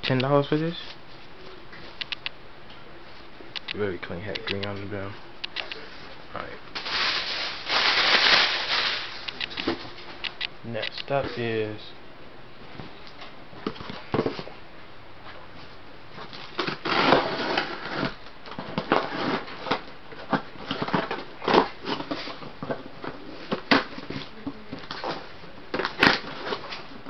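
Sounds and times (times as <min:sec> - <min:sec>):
cardboard box scraping and rustling: 0:16.3 - 0:24.2
scissors cutting cardboard: 0:16.6 - 0:19.8.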